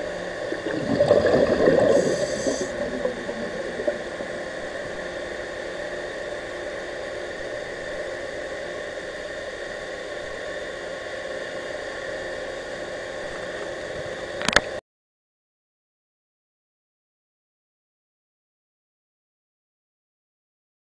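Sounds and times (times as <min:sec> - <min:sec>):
low hum: 0:00.0 - 0:11.2
underwater hiss: 0:00.5 - 0:05.9.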